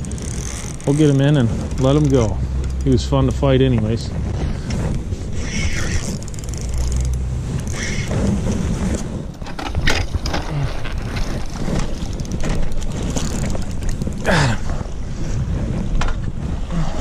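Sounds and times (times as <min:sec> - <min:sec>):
spinning reel cranking: 0:00.0 - 0:03.2, 0:05.4 - 0:08.2, 0:11.2 - 0:14.3
wind rumbling on microphone: 0:00.0 - 0:17.0.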